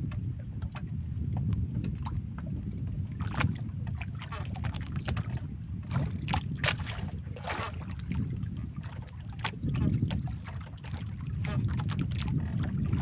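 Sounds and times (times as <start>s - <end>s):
water slapping against hull: 0.0s - 13.0s
wind buffeting microphone: 0.0s - 13.0s.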